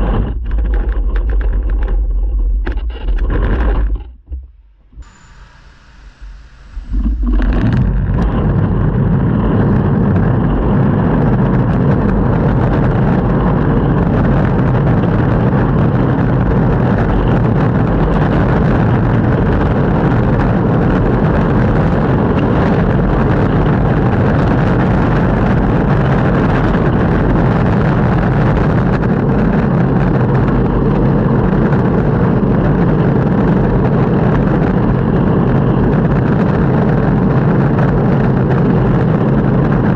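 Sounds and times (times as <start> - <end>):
longboard wheels rolling on road: 0.0 - 5.4, 6.2 - 39.9.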